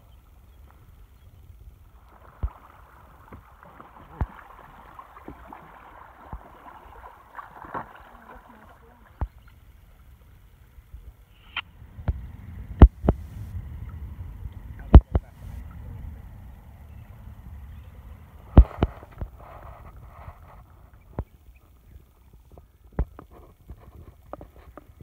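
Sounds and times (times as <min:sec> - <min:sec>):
paddles splashing in water: 0:00.0 - 0:25.0
low rumble: 0:09.2 - 0:22.3.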